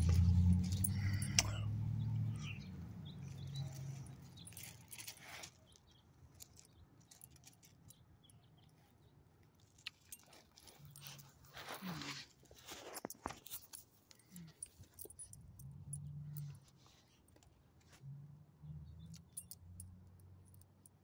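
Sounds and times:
car passing: 0.0 - 4.6.

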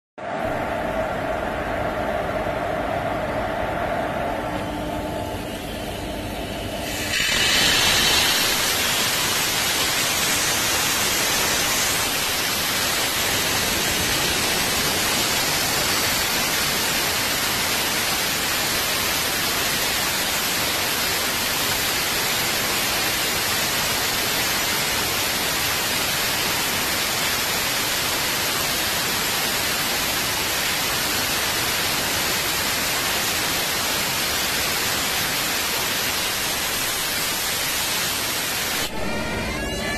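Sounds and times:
compressed air hissing from valve: 6.8 - 16.6.

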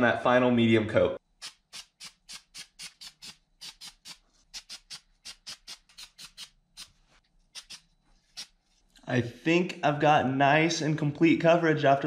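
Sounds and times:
spray paint can hissing bursts: 1.4 - 6.5.

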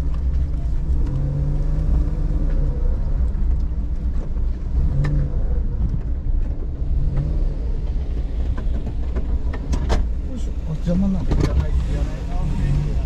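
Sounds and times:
car engine rumble from inside cabin: 0.0 - 13.0.

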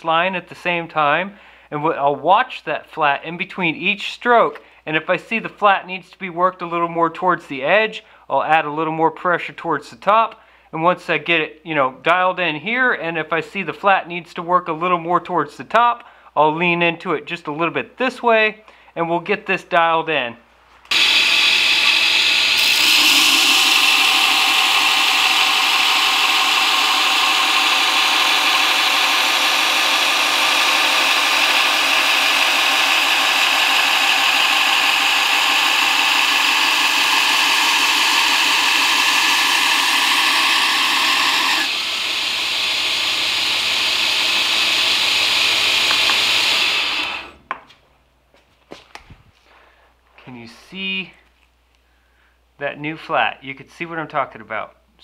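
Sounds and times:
belt grinder grinding steel: 20.9 - 47.4.

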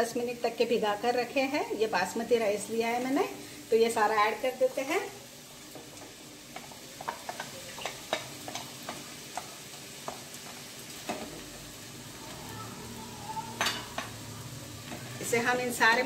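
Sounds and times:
rice sizzling in pan: 0.0 - 16.0
grains clicking in pan: 5.8 - 11.6.

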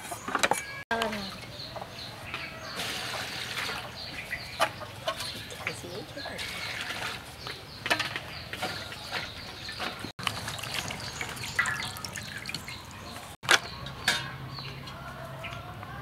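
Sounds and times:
water splashing and dripping: 2.7 - 7.6, 8.5 - 13.4.

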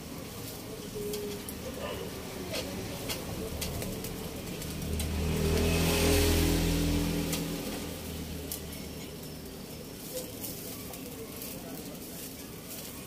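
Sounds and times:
metal tongs clicking on grill: 0.9 - 5.7
vehicle engine passing by: 2.2 - 9.6.

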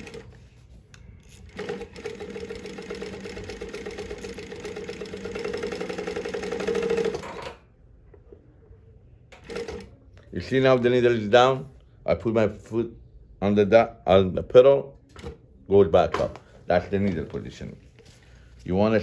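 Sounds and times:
sewing machine stitching: 0.0 - 0.3, 1.3 - 7.6, 9.4 - 10.0.

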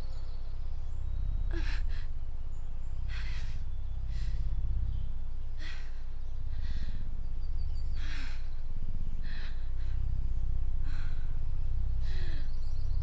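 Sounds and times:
low steady rumble: 0.0 - 13.0
person breathing hard: 1.5 - 2.2, 3.0 - 4.8, 5.4 - 7.2, 7.9 - 12.7.

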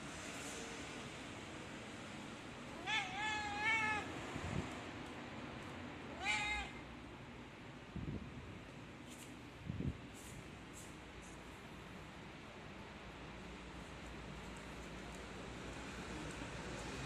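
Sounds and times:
cat meowing: 2.7 - 4.1, 6.1 - 6.8.

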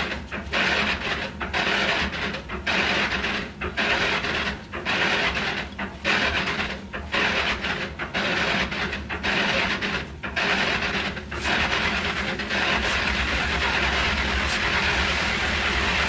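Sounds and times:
hand saw cutting wood: 10.4 - 16.0.

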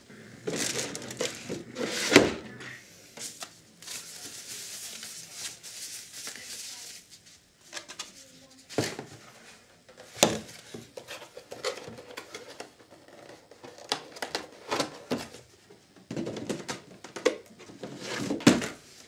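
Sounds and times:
cardboard rustling: 0.4 - 2.4.

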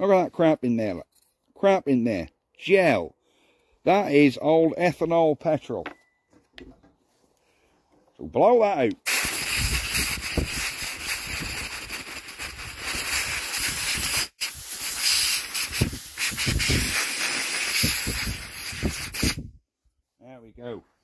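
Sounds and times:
compressed air hissing: 9.0 - 19.5.

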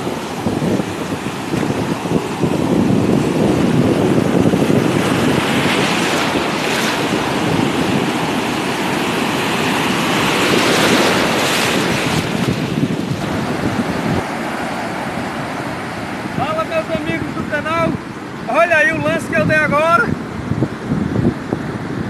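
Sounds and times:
ocean surf breaking: 0.0 - 22.0.

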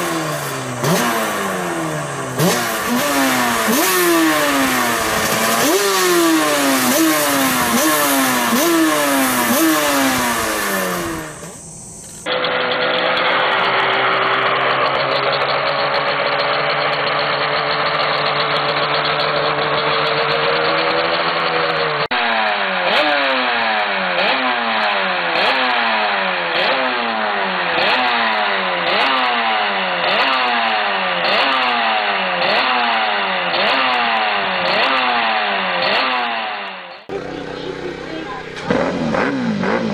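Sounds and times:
racing motorcycle engine accelerating: 0.0 - 39.9.

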